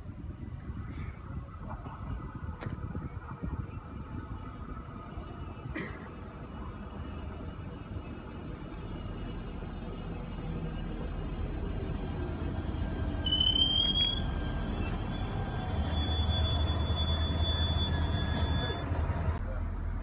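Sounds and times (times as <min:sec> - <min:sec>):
train rumbling: 0:00.0 - 0:20.0
high-pitched train squeal: 0:08.2 - 0:19.3.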